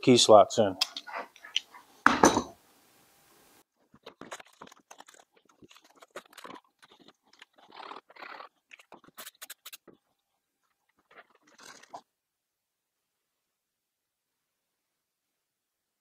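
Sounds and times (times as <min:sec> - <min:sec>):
tape crinkling and scraping: 0:03.7 - 0:12.0.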